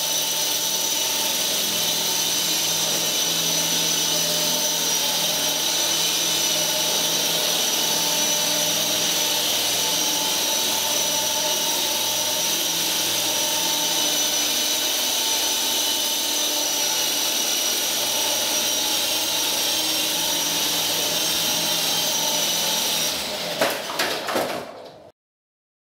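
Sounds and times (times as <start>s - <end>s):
toy helicopter motors whining: 0.0s - 23.7s.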